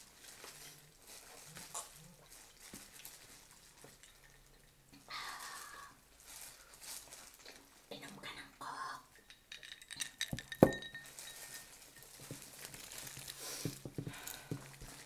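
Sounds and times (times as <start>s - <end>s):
eating knocks and rustles: 0.0s - 4.7s, 9.9s - 15.0s
glass clinking on table: 9.2s - 11.7s.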